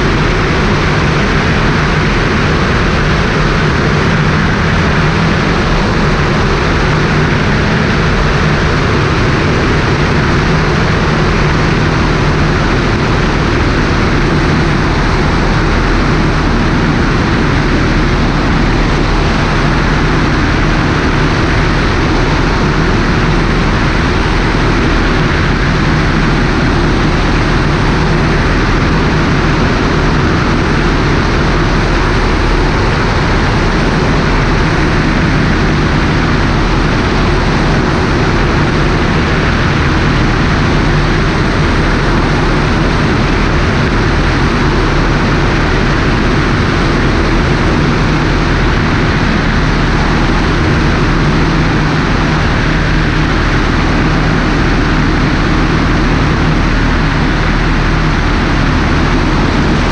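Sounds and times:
airplane engine droning: 0:00.0 - 0:59.9
wind rush: 0:00.0 - 0:59.9.

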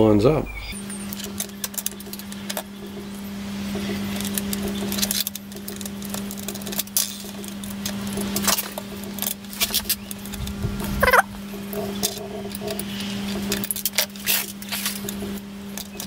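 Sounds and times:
brief squeak: 0:11.0 - 0:11.3.

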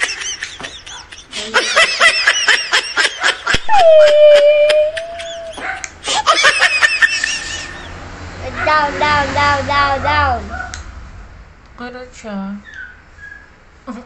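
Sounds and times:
people laughing hard: 0:00.0 - 0:08.0.

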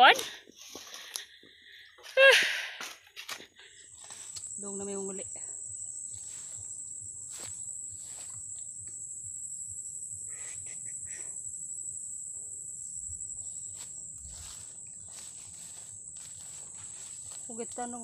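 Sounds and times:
high-pitched insect drone: 0:00.0 - 0:18.0
faint rustles and ticks: 0:13.7 - 0:18.0.

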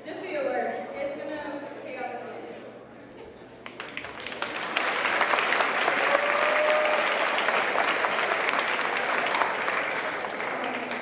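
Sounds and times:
crowd applauding: 0:03.7 - 0:11.0.

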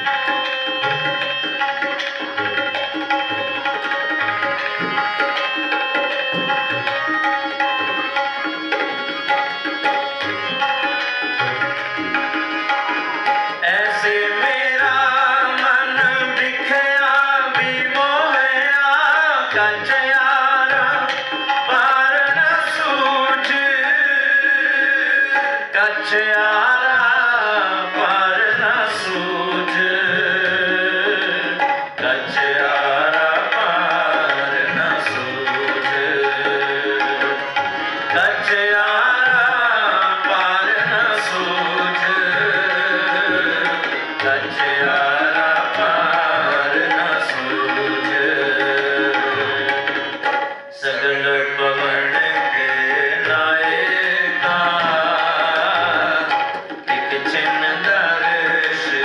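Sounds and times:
harmonium: 0:00.0 - 0:59.0
tabla: 0:00.0 - 0:59.0
men singing a hymn: 0:21.6 - 0:37.3, 0:38.1 - 0:50.2, 0:50.8 - 0:59.0.

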